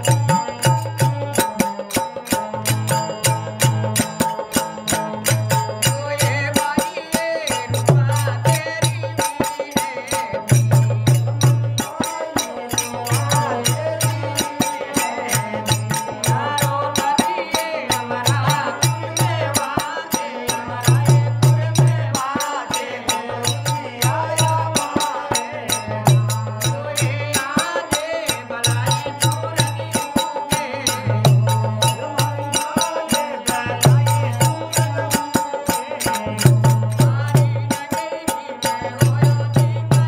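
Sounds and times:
man singing: 0.0 - 40.0
hand drum beat: 7.7 - 38.0.

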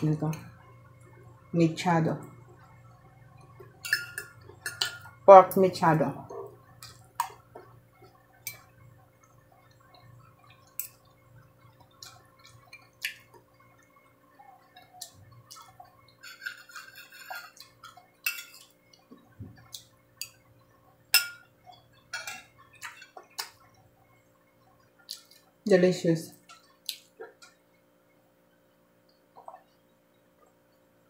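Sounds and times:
cutlery clinking on plate: 16.2 - 17.6.

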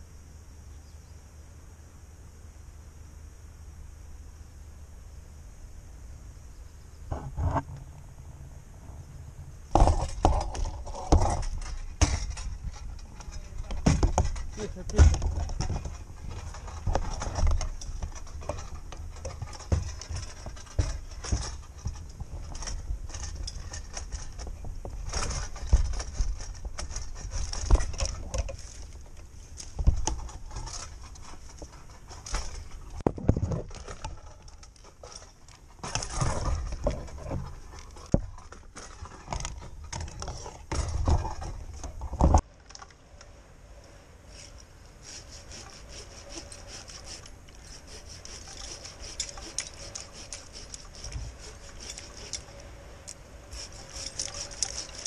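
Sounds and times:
climbing gear knocking and clinking: 9.7 - 42.8, 46.2 - 55.0.

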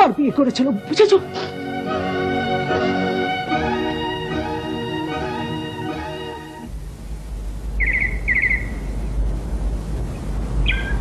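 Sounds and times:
violin-led string melody: 0.0 - 6.7.

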